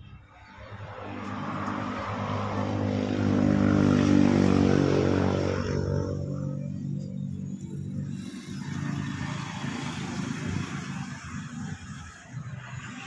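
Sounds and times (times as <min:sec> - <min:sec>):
vehicle engine passing by: 0:00.2 - 0:13.0.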